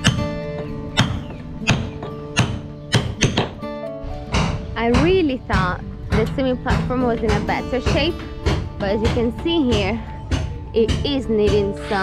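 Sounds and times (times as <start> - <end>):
acoustic guitar music: 0.0 - 12.0
hammer striking steel tool: 4.3 - 5.0.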